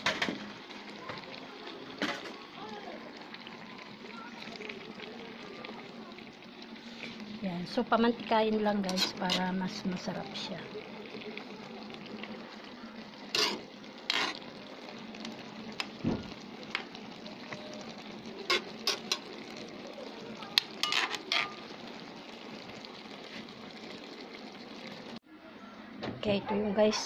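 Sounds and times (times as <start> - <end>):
pot simmering with hiss: 0.0 - 25.3
utensil scraping and knocking pot: 8.9 - 9.5, 13.3 - 14.4, 20.8 - 21.6.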